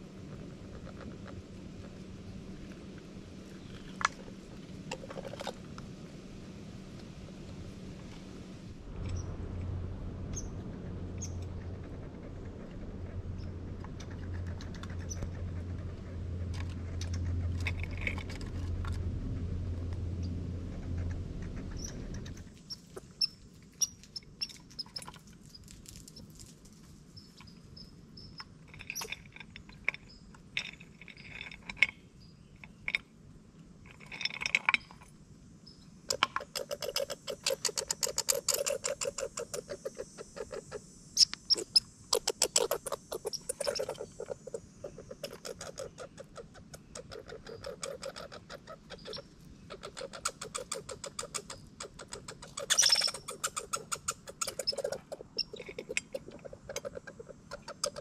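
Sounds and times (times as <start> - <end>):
low engine-like hum: 0.0 - 58.0
squirrel gnawing nut shell: 10.4 - 26.9, 36.1 - 58.0.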